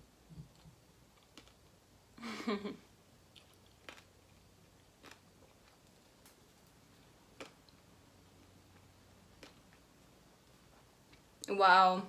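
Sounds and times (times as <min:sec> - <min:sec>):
faint chewing: 0:00.3 - 0:01.7, 0:03.3 - 0:11.5
small crunches: 0:03.3 - 0:04.4, 0:05.0 - 0:06.8.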